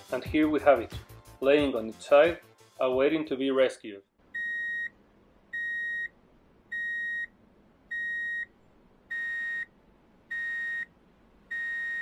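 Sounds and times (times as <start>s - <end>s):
electronic backup alarm beeping: 4.4s - 7.3s, 7.9s - 8.5s, 9.1s - 9.7s, 10.3s - 10.9s, 11.5s - 12.0s.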